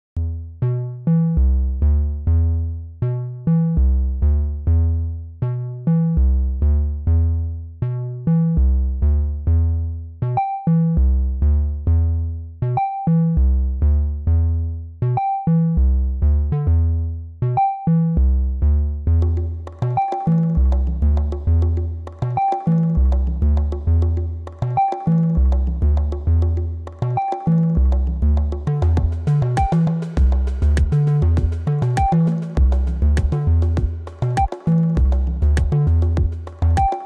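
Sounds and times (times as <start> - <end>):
deep bass line: 0.0 - 37.0
percussion: 19.2 - 37.0
synthesizer short notes: 28.8 - 34.9.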